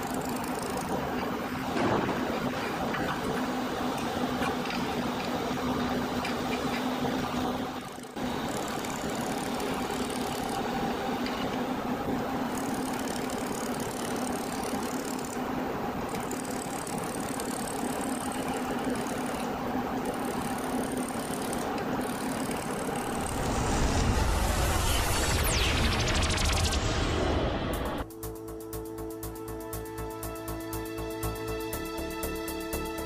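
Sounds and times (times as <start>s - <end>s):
welding machine humming: 0.0s - 33.0s
deep rumble: 23.0s - 28.1s
whoosh sweeping down: 23.0s - 28.1s.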